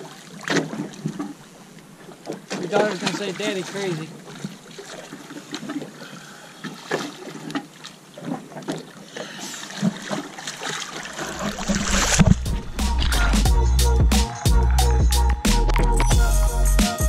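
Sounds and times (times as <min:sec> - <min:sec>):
swimmer splashing: 0:00.0 - 0:13.5
water lapping against boat hull: 0:00.0 - 0:13.5
low rumble: 0:11.1 - 0:16.1.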